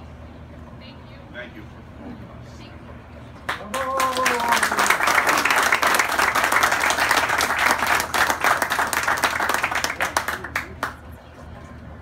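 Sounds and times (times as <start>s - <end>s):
audience applauding: 3.5s - 11.0s.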